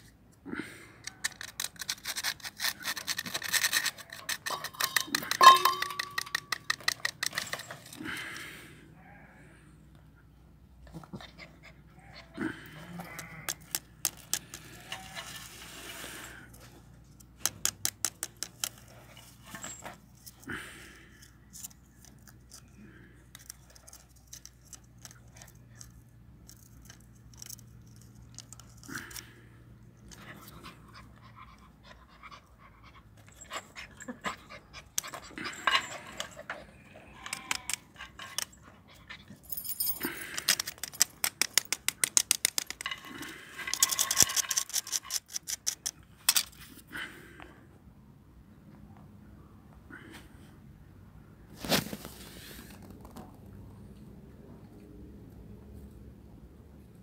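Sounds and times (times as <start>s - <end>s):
metal chain rattling on concrete: 1.1s - 8.2s, 12.2s - 16.4s, 17.5s - 20.6s, 30.0s - 46.6s
small puppy noises: 10.8s - 13.8s.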